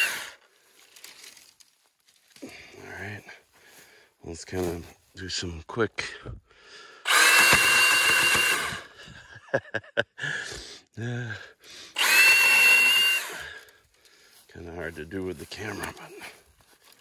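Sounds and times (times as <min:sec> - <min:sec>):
cordless pruning saw whining: 0:00.0 - 0:00.4, 0:07.1 - 0:08.9, 0:12.0 - 0:13.7.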